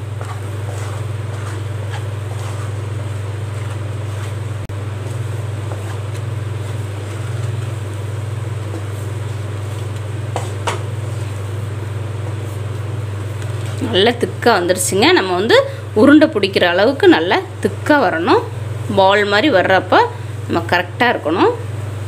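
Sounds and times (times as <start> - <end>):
wooden spatula scraping pan: 0.0 - 11.4
steady low hum: 0.0 - 22.0.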